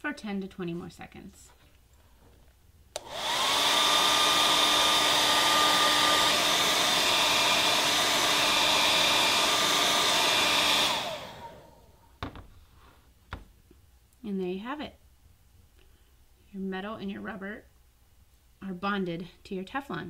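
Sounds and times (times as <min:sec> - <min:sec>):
hair dryer switch click: 0:03.0 - 0:03.6
hair dryer blowing: 0:03.0 - 0:12.0.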